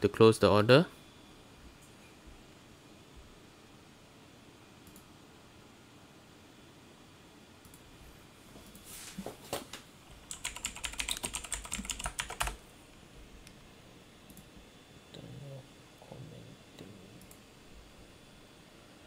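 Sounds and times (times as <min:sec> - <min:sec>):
keyboard keys clicking: 0:10.3 - 0:12.6.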